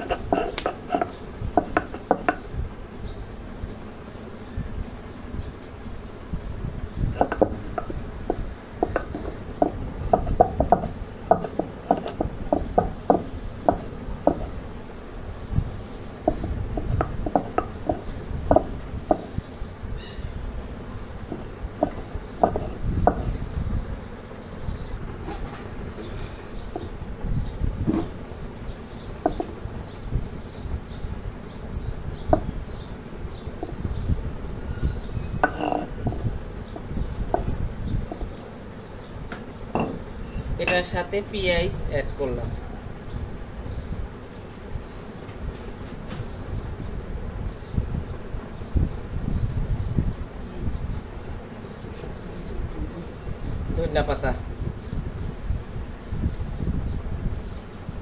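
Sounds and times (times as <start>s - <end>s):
scraping on grinding stone: 0.0s - 2.5s, 7.1s - 14.6s, 15.6s - 19.4s, 21.2s - 23.4s, 25.0s - 27.0s, 27.8s - 28.3s, 29.2s - 29.6s, 34.9s - 38.4s
stone clacking on stone: 0.0s - 2.5s, 7.2s - 14.5s, 35.4s - 36.0s
bird calls: 0.0s - 57.9s.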